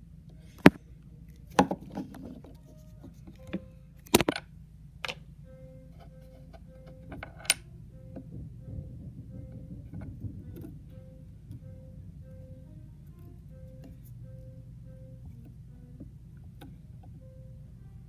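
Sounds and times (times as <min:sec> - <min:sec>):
faint background music: 0:00.0 - 0:18.0
objects knocking on wooden board: 0:06.8 - 0:12.4.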